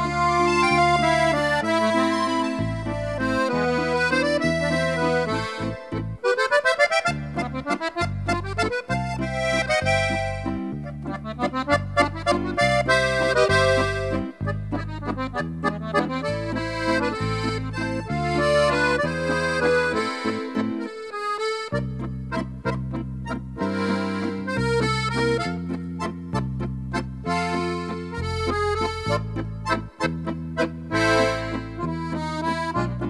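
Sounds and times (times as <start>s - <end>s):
waltz music: 0.0s - 33.0s.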